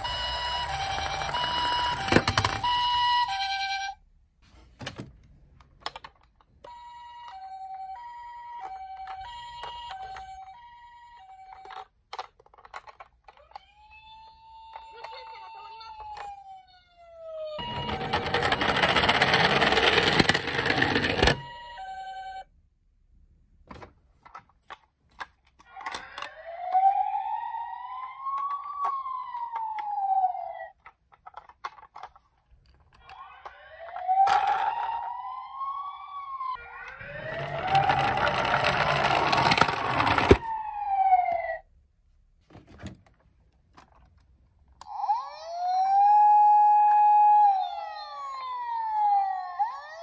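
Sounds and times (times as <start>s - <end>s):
plastic toys clicking: 0.0s - 3.0s, 5.5s - 16.5s, 17.6s - 21.5s, 24.2s - 35.2s, 36.8s - 40.5s, 43.0s - 50.0s
toys rolling whirring: 0.0s - 3.9s, 17.6s - 22.4s, 25.6s - 30.8s, 33.0s - 41.6s, 44.8s - 50.0s
toy electronic sirens wailing: 0.0s - 4.0s, 6.6s - 22.5s, 25.6s - 30.8s, 32.9s - 41.7s, 44.8s - 50.0s.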